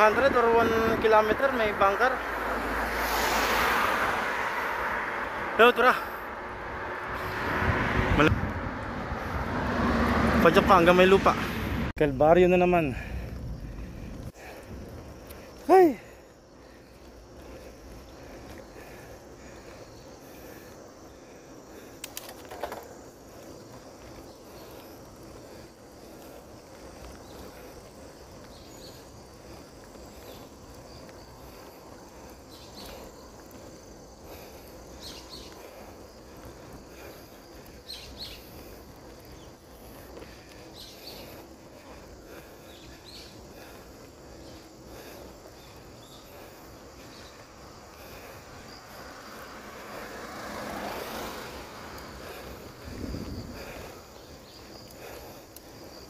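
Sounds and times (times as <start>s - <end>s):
outdoor background noise: 0.0s - 56.0s
cluster of clicks: 21.9s - 23.0s.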